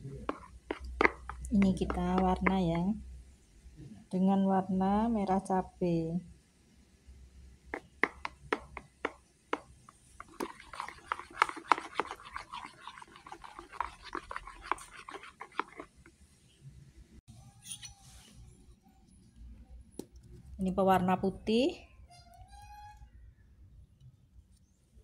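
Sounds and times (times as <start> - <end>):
spoon scraping bowl: 0.2 - 2.6, 7.7 - 16.2.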